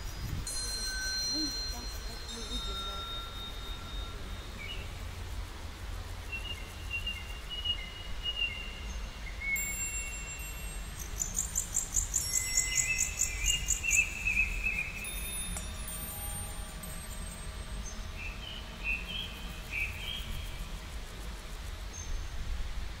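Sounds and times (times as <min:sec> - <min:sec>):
low steady rumble: 0:00.0 - 0:23.0
birds singing: 0:06.2 - 0:20.9.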